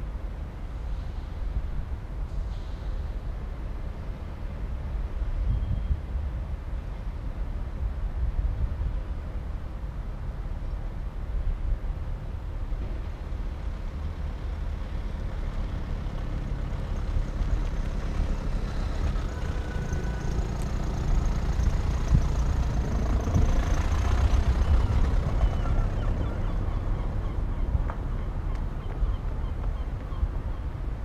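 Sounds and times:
steady low rumble: 0.0 - 31.0
car driving past: 14.2 - 27.6.

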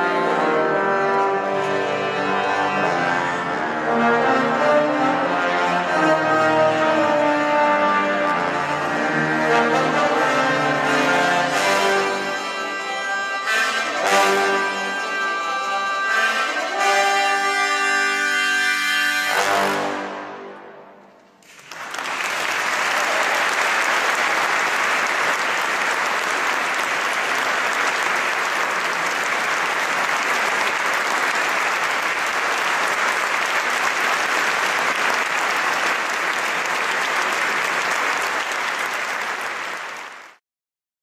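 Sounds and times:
trombone ensemble chord: 0.0 - 21.0
audience applauding: 21.4 - 40.4.

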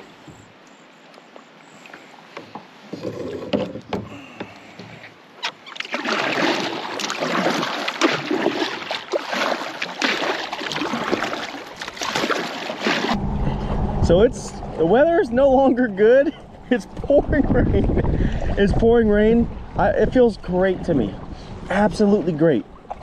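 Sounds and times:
kayak paddle splashing water: 1.8 - 13.2, 15.6 - 19.8, 20.6 - 23.0.

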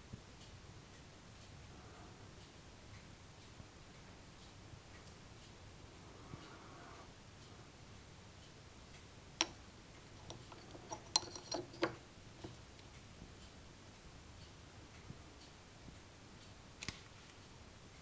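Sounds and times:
medallion clicking against wood: 10.2 - 12.6.

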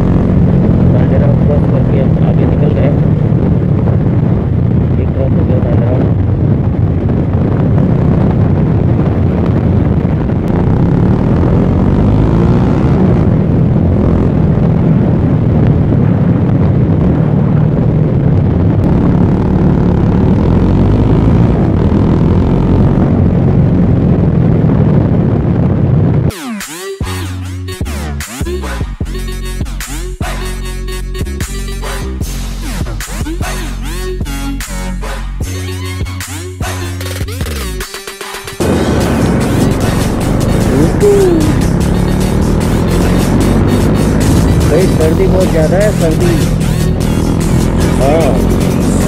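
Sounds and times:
motorcycle engine hum: 0.0 - 26.3, 38.4 - 49.0
wind noise on microphone: 0.0 - 26.3, 38.6 - 49.0.

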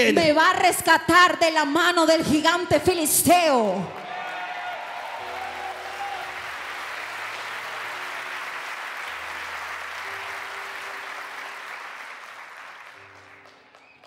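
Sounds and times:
congregation applauding: 3.9 - 14.0.

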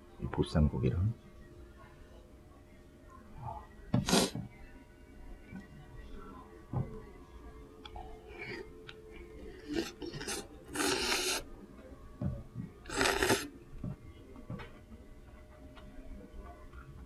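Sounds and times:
person slurping noodles: 4.0 - 4.4, 9.5 - 11.5, 12.9 - 13.5.

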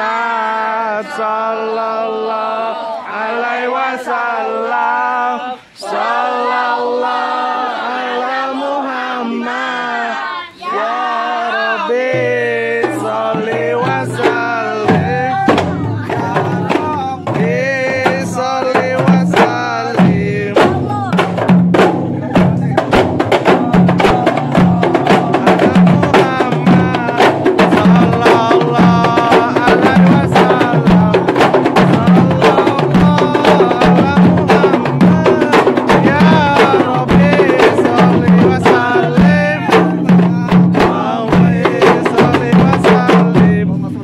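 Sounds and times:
voices chanting: 0.0 - 44.0
frame drums playing fast rhythm: 12.0 - 44.0
deep drum pulse: 12.1 - 44.0.

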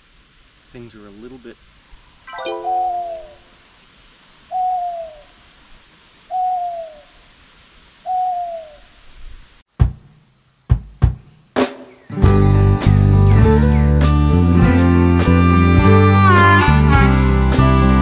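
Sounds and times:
owl hoots: 4.5 - 5.4, 6.3 - 7.2, 8.0 - 9.0
music with guitar: 12.1 - 18.0.

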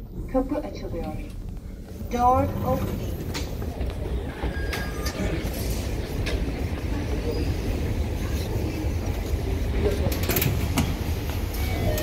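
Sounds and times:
low rumble of metro station: 0.0 - 12.0
turnstile clicks: 2.6 - 5.5, 9.0 - 12.0.

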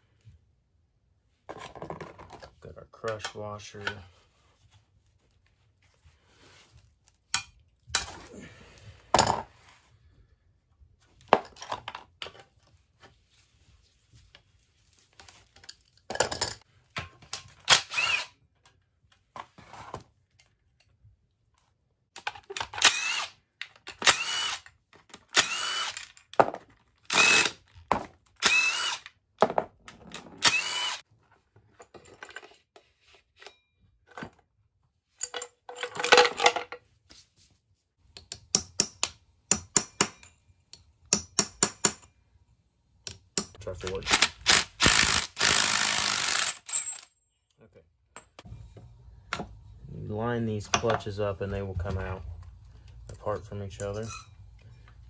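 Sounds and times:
tools and metal parts clinking: 15.2 - 17.8, 25.8 - 26.8, 31.6 - 32.7, 35.1 - 36.8, 46.4 - 47.6
power driver whining: 30.4 - 31.0.

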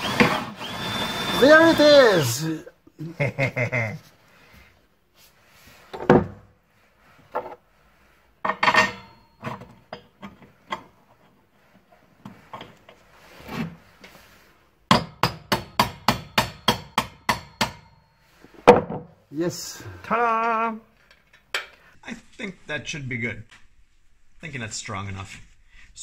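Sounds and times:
knocks and scrapes: 5.2 - 14.6.

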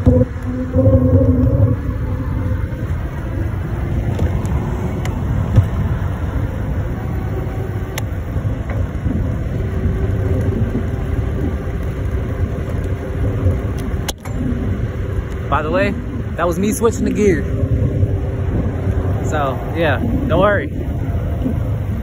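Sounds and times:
faint steady hum: 0.0 - 22.0
wind buffeting microphone: 0.0 - 22.0
faint clicks: 7.9 - 8.9, 10.2 - 14.4.

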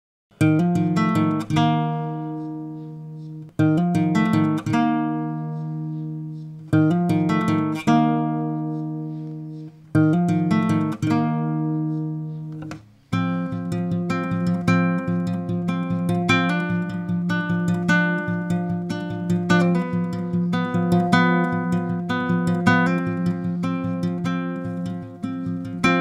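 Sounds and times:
acoustic guitar strumming chords: 0.4 - 26.0.

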